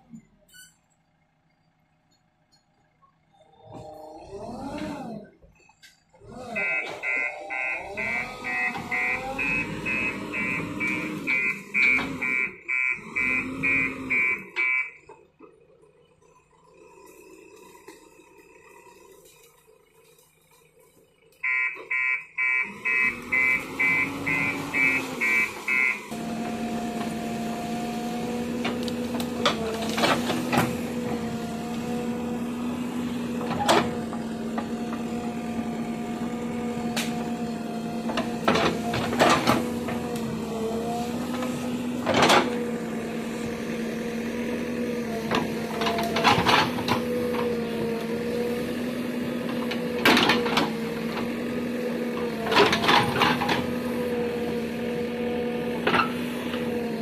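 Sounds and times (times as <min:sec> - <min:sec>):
diesel engine running: 0:00.0 - 0:57.0
pulsed beeper: 0:06.5 - 0:15.0.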